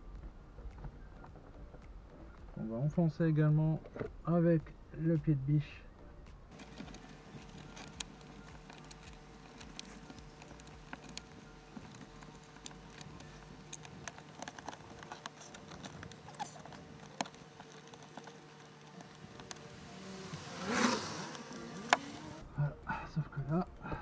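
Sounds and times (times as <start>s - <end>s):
faint steady hum: 5.6s - 24.0s
plastic and cable clicks and scratches: 6.5s - 22.4s.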